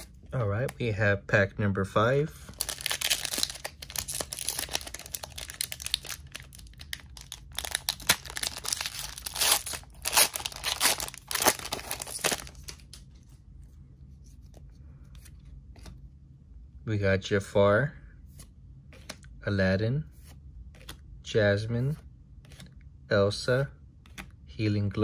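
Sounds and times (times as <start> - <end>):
foil pack crinkling and tearing: 2.5 - 13.0.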